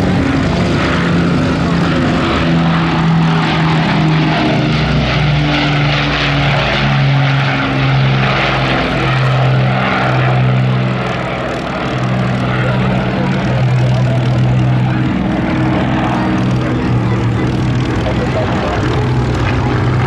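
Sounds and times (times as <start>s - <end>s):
propeller aircraft flying past: 0.0s - 20.0s.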